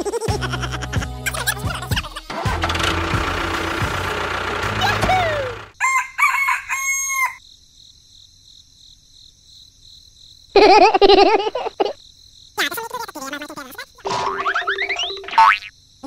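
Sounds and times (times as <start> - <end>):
rooster crowing: 4.8 - 7.4.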